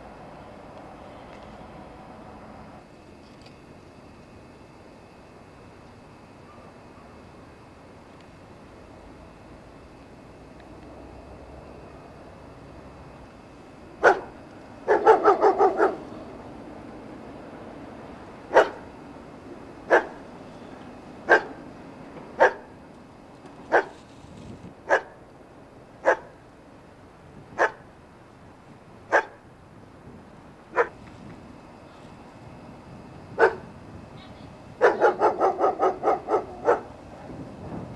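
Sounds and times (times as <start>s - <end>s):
dog barking: 14.0s - 14.3s, 14.9s - 16.0s, 18.5s - 18.8s, 19.9s - 20.2s, 21.3s - 21.6s, 22.4s - 22.7s, 23.7s - 24.0s, 24.9s - 25.2s, 26.0s - 26.4s, 27.6s - 27.8s, 29.1s - 29.4s, 30.8s - 31.0s, 33.4s - 33.7s, 34.8s - 36.9s.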